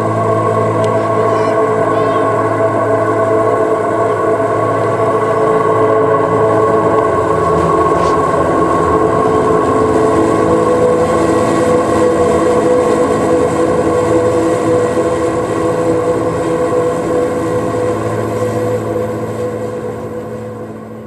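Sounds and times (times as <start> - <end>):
ambient electric guitar drone: 0.0 - 21.0.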